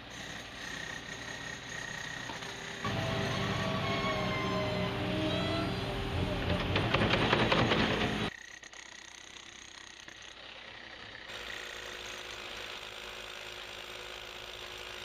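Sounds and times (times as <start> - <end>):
electric hammer chiselling concrete: 0.0 - 3.8, 6.9 - 15.0
rotary hammer drilling: 0.0 - 15.0.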